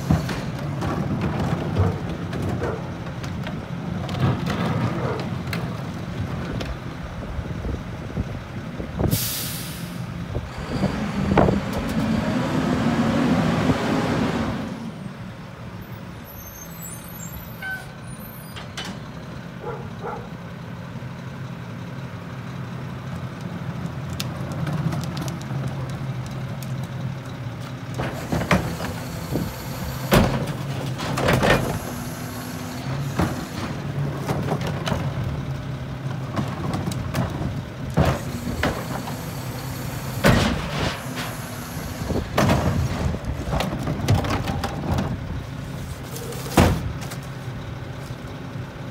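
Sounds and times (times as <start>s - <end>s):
bins knocking and banging: 42.3s - 45.2s.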